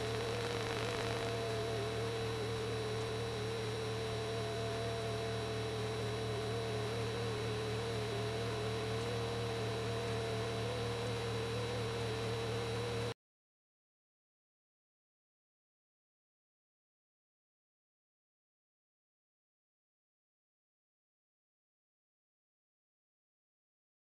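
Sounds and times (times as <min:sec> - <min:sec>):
steady hiss: 0:00.0 - 0:01.8
low hum: 0:00.0 - 0:13.2.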